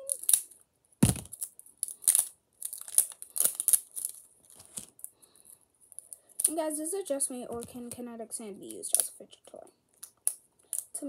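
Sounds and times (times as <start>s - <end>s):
scissors cutting plastic wrapping: 0.0s - 4.9s
plastic wrapping crinkling: 0.0s - 5.1s.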